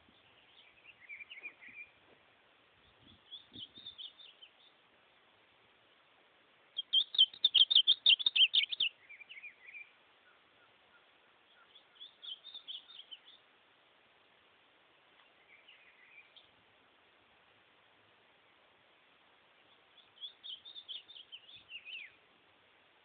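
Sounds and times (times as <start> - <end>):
bird singing whistled notes: 0.2 - 2.0, 2.8 - 4.8, 6.8 - 13.4, 15.4 - 16.5, 19.6 - 22.2.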